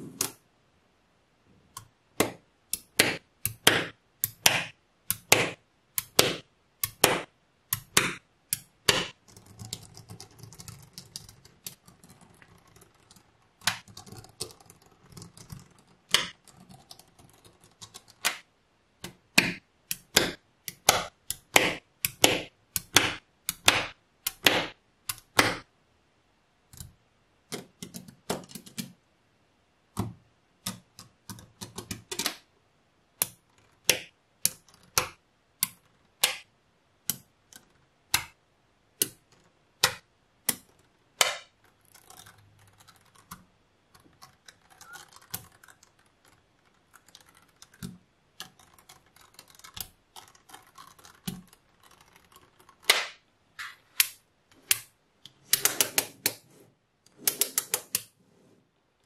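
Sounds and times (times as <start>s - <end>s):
magnetic balls clicking: 1.7s - 25.4s, 33.2s - 38.4s, 39.0s - 56.4s.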